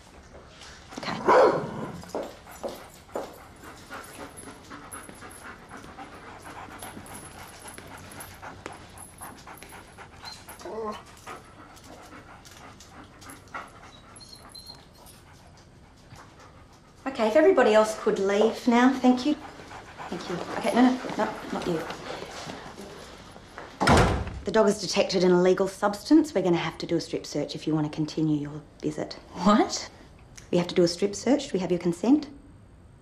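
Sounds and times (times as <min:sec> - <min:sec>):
dog panting and sniffing: 0:01.9 - 0:23.6.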